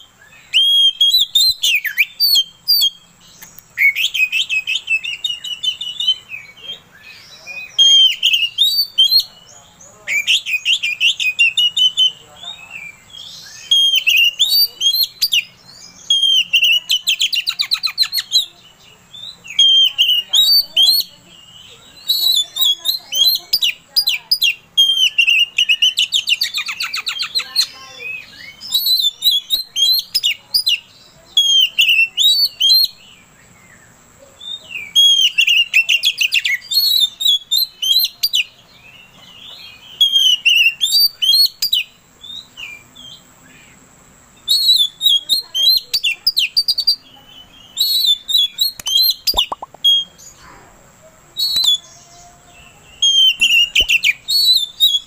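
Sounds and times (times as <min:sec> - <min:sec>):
bird singing whistled phrases: 0:00.0 - 0:09.5, 0:10.1 - 0:43.2, 0:44.4 - 0:50.4, 0:51.4 - 0:55.0.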